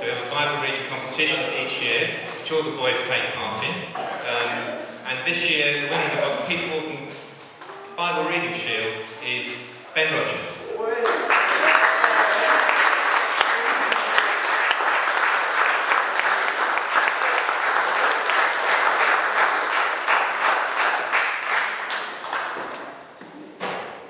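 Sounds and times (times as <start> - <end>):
audience applauding: 11.0 - 23.0.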